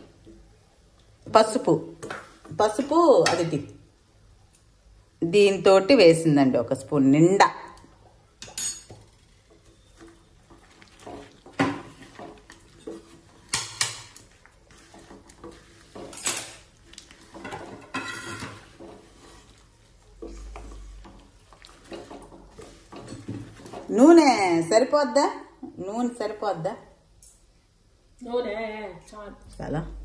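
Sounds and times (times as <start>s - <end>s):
wooden spatula scraping a pan: 8.9s - 24.9s.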